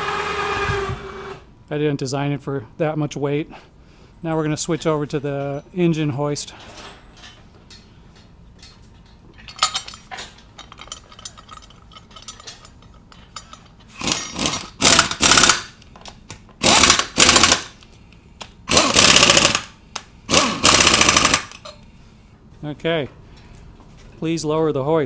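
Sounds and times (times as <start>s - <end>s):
pneumatic impact wrench bursts: 0.0s - 1.5s, 13.9s - 15.8s, 16.6s - 17.8s, 18.7s - 21.6s
tool clatter: 6.5s - 17.7s.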